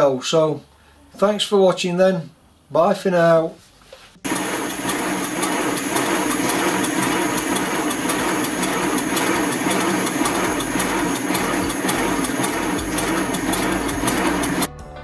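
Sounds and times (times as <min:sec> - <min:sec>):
model locomotive motion beating: 0:04.3 - 0:14.7.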